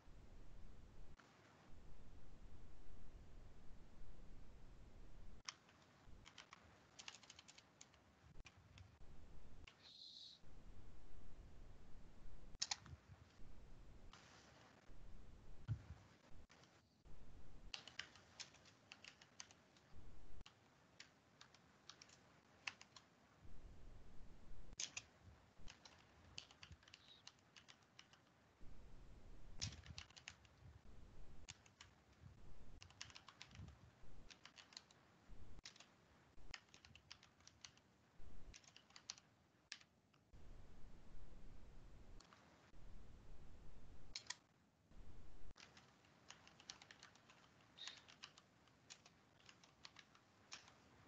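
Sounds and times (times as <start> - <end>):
computer keyboard typing: 5.4 - 9.0, 12.6 - 13.0, 17.7 - 23.1, 24.8 - 28.3, 29.6 - 30.6, 31.4 - 32.0, 32.8 - 35.0, 35.6 - 39.9, 44.1 - 44.4, 45.5 - 51.0.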